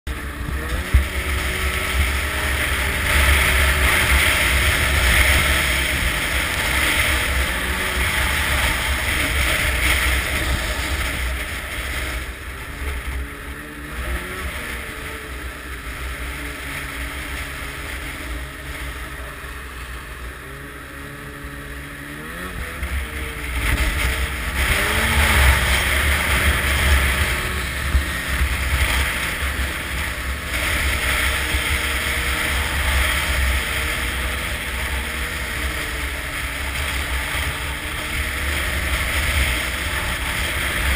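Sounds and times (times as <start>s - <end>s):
snowmobile engine running: 0.0s - 40.9s
wind noise on microphone: 0.1s - 18.7s, 22.2s - 40.9s.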